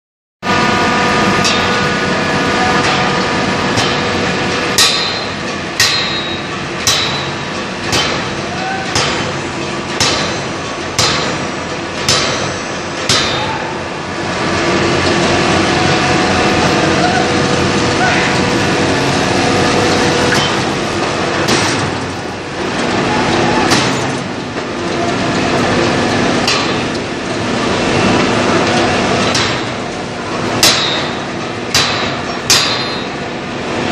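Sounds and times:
forge-shop machinery din: 0.4s - 33.9s
forging hammer ringing blows: 4.8s - 9.3s, 30.6s - 33.2s.

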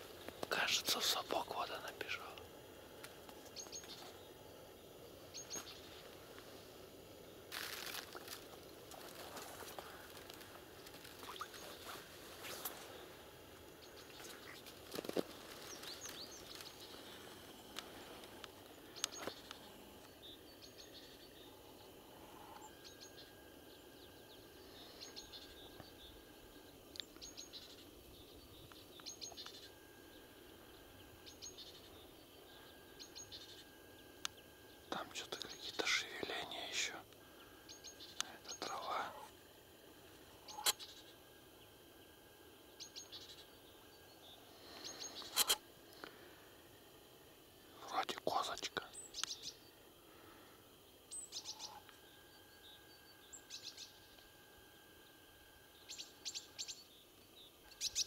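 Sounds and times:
songbirds short high calls: 3.4s - 6.6s, 9.1s - 13.0s, 40.3s - 41.2s, 51.0s - 54.2s, 55.7s - 58.0s
rustles: 7.4s - 20.2s.

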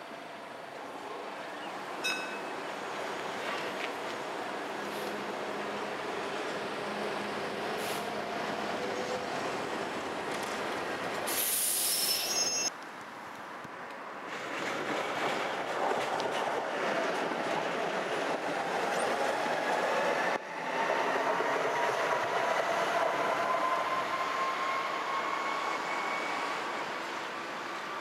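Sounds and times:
tram wheels rumbling on rails: 14.2s - 28.0s.

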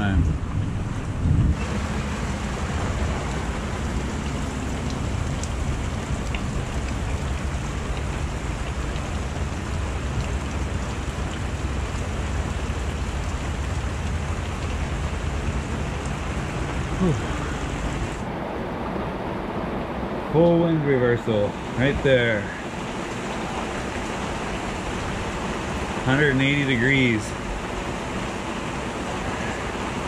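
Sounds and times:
low rumble: 0.0s - 20.3s
rain on boat deck: 0.0s - 30.0s.

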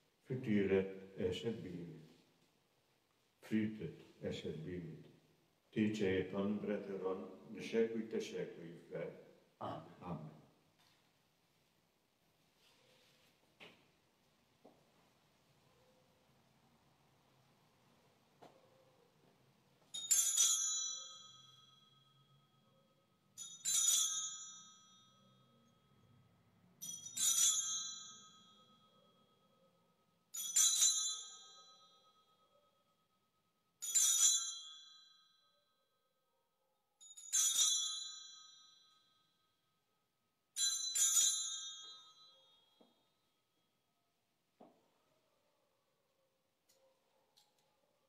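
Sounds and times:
altar bell jingling: 19.9s - 25.7s, 26.8s - 29.7s, 30.3s - 32.7s, 33.8s - 35.7s, 37.0s - 39.5s, 40.6s - 43.3s.

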